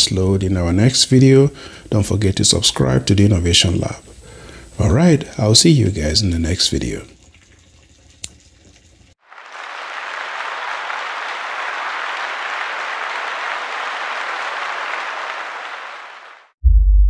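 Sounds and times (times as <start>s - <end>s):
crowd clapping: 9.2s - 16.6s.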